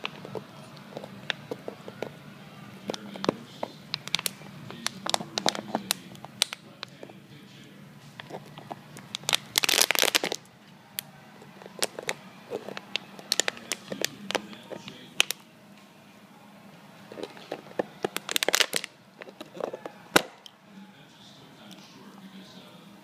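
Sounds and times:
dog chewing plastic bottle: 0.0s - 7.2s, 8.1s - 10.5s, 11.4s - 15.4s, 17.0s - 20.5s.

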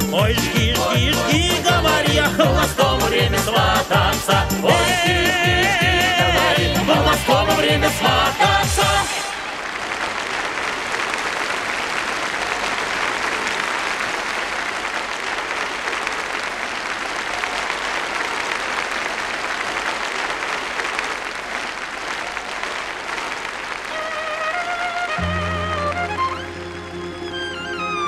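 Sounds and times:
audience applauding: 0.1s - 28.0s
instrumental music: 23.9s - 28.0s.

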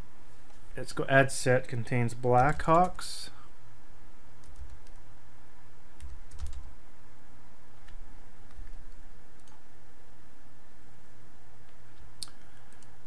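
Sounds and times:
steady low hum: 0.0s - 13.0s
computer keyboard typing: 2.4s - 3.0s, 4.4s - 5.0s, 6.0s - 6.7s, 7.8s - 9.6s.

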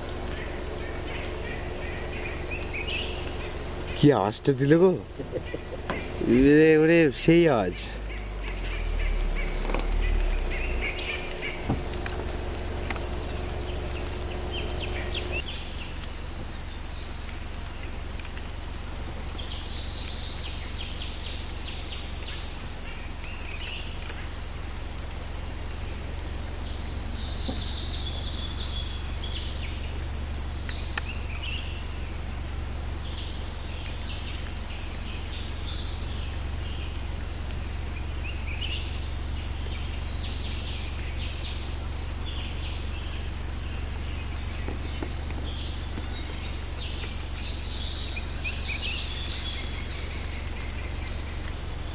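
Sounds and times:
low rumble: 0.0s - 17.1s
birds chirping: 0.0s - 51.9s
insects droning: 0.0s - 51.9s
low hum: 0.0s - 51.9s.

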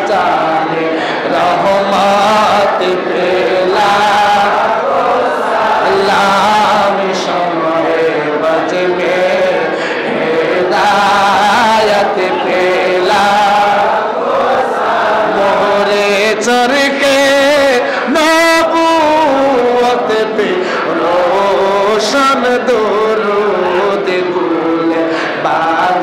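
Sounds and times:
men chanting together: 0.0s - 26.0s.

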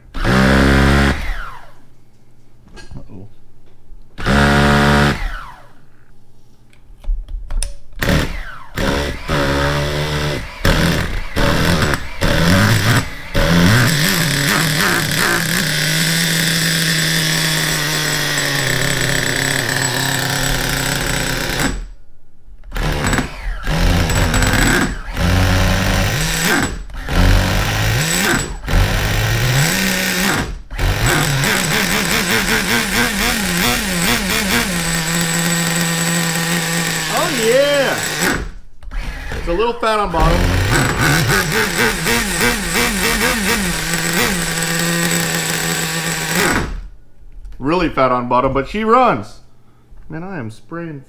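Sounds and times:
electric starter cranking: 8.0s - 22.0s, 22.7s - 39.5s, 40.2s - 46.9s
model car engine running: 40.7s - 46.4s.

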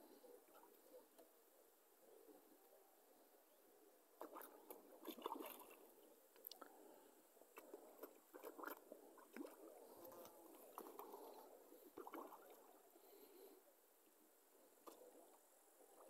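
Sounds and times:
fish splashing at water surface: 4.2s - 5.9s, 7.6s - 12.8s.

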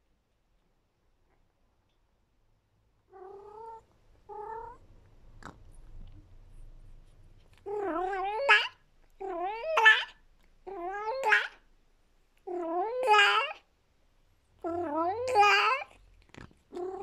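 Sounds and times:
cat yowling: 7.7s - 11.6s.

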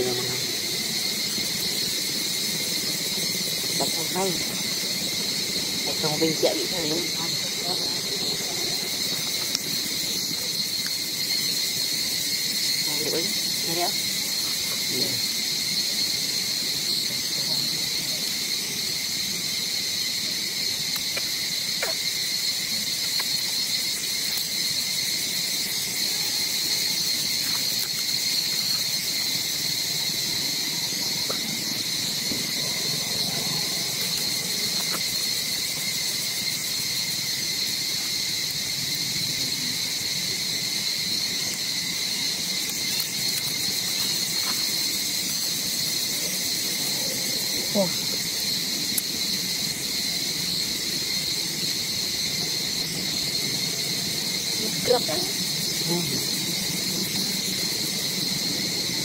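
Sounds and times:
insects buzzing: 0.0s - 59.0s.

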